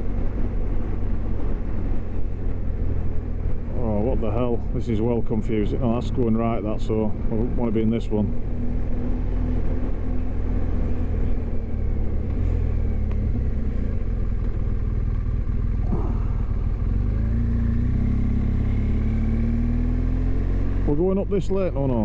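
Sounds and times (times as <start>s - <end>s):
motorcycle engine accelerating: 6.3s - 21.3s.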